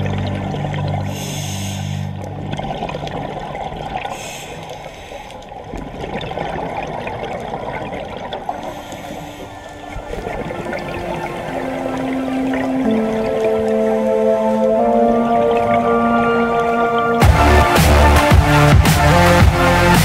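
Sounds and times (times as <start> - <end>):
exhaled bubbles rushing: 0.0 - 4.8, 5.4 - 19.4
murky underwater noise: 0.0 - 19.8
scuba regulator hissing: 1.1 - 2.1.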